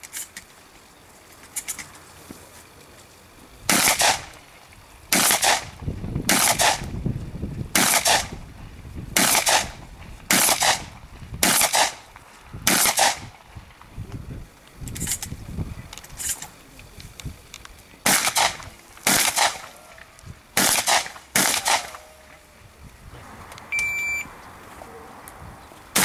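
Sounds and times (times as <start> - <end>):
shotgun shots echoing: 3.7 - 4.3, 5.1 - 5.7, 6.3 - 6.9, 7.8 - 8.3, 9.2 - 9.7, 10.3 - 12.0, 12.7 - 13.2, 18.0 - 19.7, 20.6 - 22.0.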